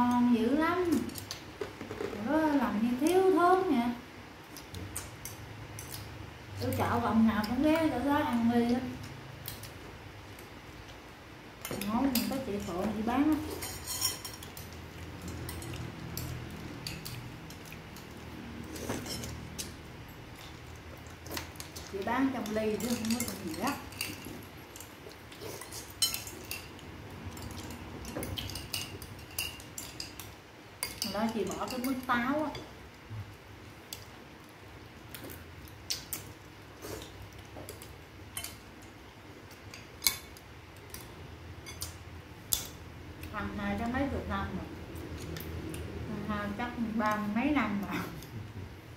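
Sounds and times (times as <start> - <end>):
low steady hum: 0.0 - 48.9
spoons clinking against bowls: 11.6 - 19.8, 21.8 - 32.7, 37.7 - 38.7, 39.7 - 42.7
spoons clinking on ceramic bowls: 22.4 - 24.9, 25.6 - 32.6.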